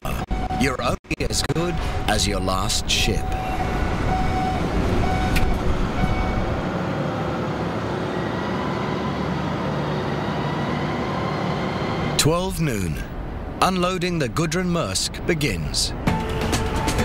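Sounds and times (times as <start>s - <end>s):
short warning beeps: 3.2s - 6.6s.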